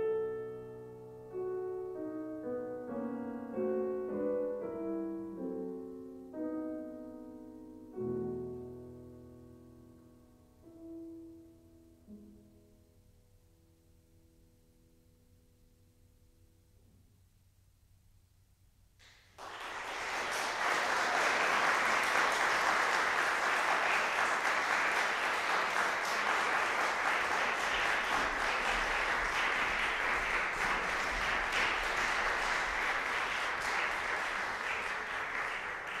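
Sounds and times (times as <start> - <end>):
audience applauding: 19.0 - 36.0.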